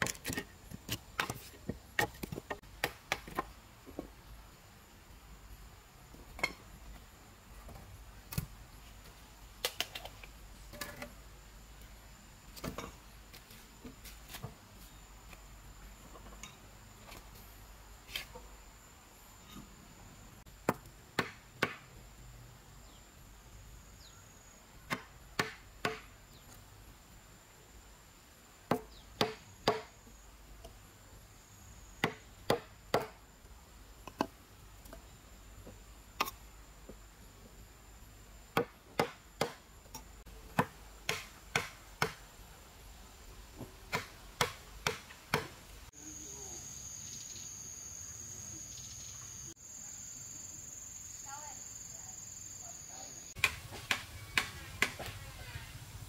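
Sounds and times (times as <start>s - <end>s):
faint steady high tone: 46.0s - 53.4s.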